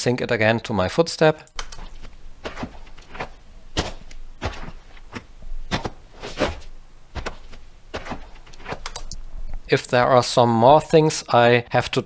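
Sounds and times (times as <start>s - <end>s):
boots walking on rocky dirt: 1.8s - 8.8s.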